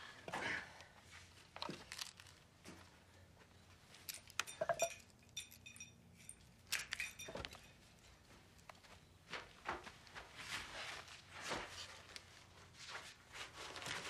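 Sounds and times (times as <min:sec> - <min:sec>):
light bulb clinking and rattling: 0:04.0 - 0:08.1.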